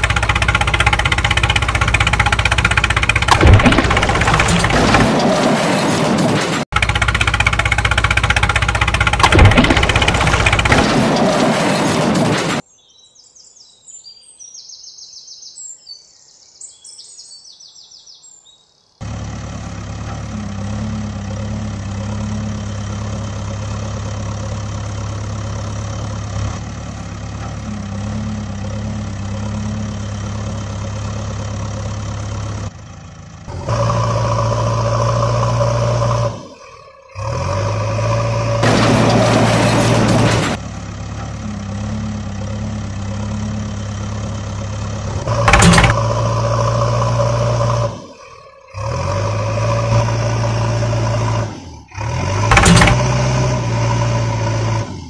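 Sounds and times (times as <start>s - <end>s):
heavy vehicle engine idling: 0.0s - 5.0s, 6.6s - 12.0s, 19.0s - 55.0s
birds chirping faintly: 12.6s - 19.1s.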